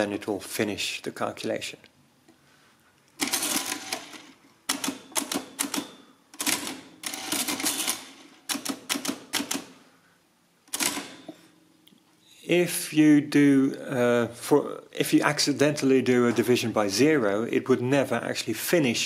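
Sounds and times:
mechanical calculator clattering: 3.2 - 9.7.

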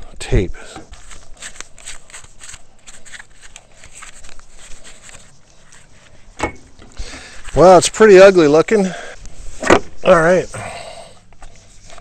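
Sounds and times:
foil tape crinkling: 0.8 - 6.3.

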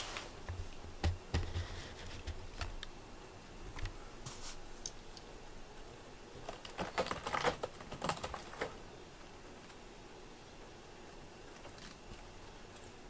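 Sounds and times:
scratchy clicks on cardboard: 0.5 - 2.8.

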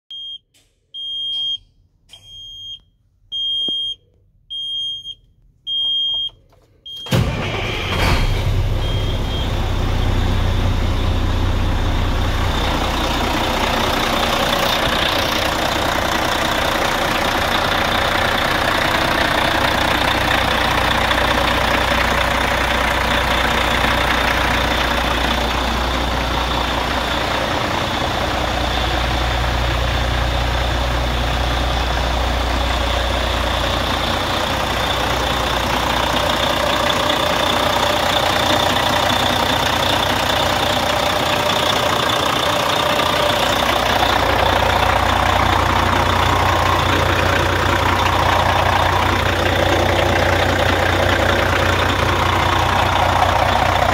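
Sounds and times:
high warning beep: 0.1 - 7.2
diesel engine starting and idling: 5.7 - 53.9.

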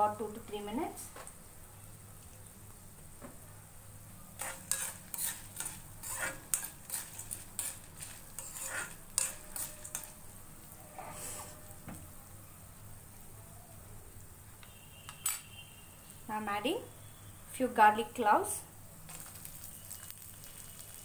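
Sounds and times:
metal spatula scraping pan: 4.4 - 11.8.

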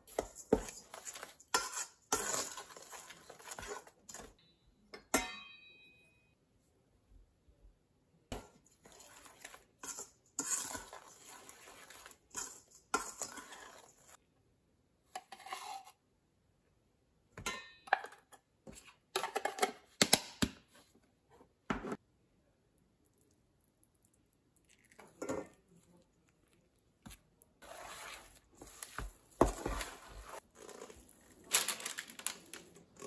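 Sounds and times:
metal spoon scraping and clinking: 0.0 - 4.4, 8.4 - 14.2, 27.6 - 33.0
nuts pouring into metal bowl: 30.6 - 33.0.

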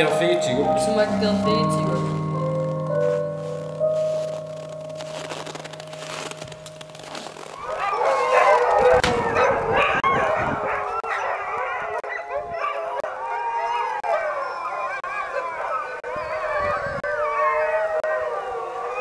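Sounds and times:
piano note: 0.0 - 9.9
dogs howling and yipping: 7.4 - 19.0.

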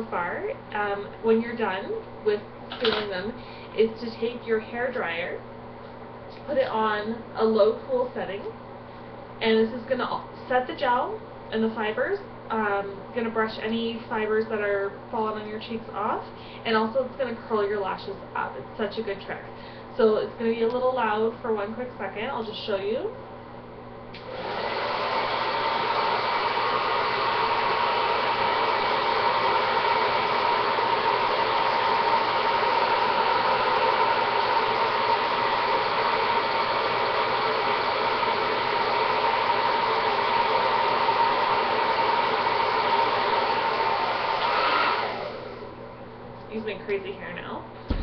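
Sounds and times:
hair dryer running: 0.0 - 3.8, 24.1 - 46.0.

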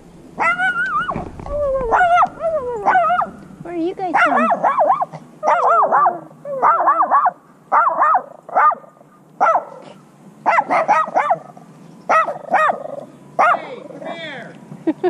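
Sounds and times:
falling whine: 0.0 - 4.7
small dog yapping: 0.4 - 3.5, 4.1 - 14.2.

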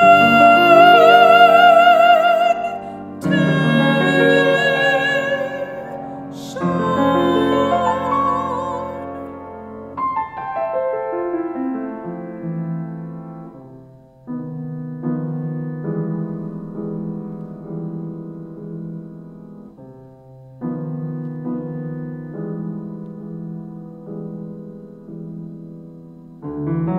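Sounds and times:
woman singing with vibrato: 0.0 - 9.5
piano chords: 0.0 - 26.9.

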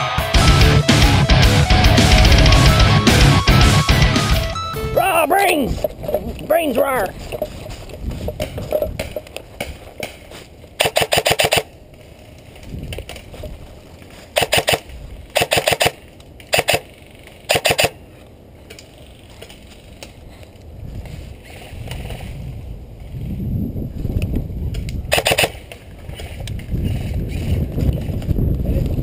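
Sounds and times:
airsoft rifle rapid bursts: 10.8 - 11.7, 14.4 - 16.9, 17.5 - 18.0, 25.1 - 25.6.

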